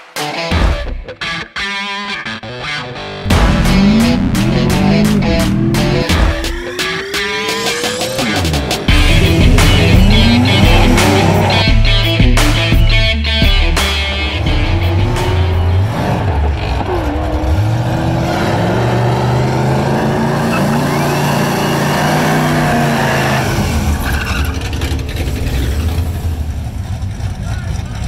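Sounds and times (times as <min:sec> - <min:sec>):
car engine revving high: 0:03.3 - 0:11.8, 0:14.1 - 0:27.4
tyres spinning and squealing: 0:15.9 - 0:26.6.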